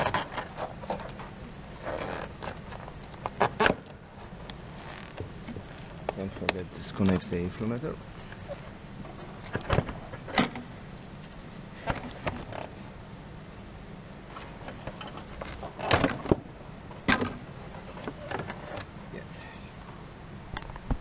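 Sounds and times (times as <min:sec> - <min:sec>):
engine parts clicking and rattling: 0:00.0 - 0:07.5, 0:14.3 - 0:19.0
steady low hum: 0:00.0 - 0:21.0.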